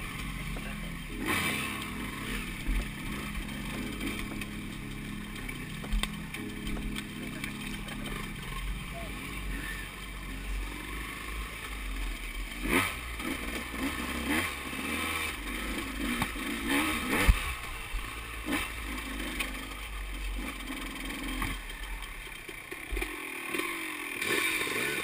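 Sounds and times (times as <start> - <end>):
motorcycle engine revving: 0.0 - 25.0
bike knocking over rough ground: 5.3 - 8.8.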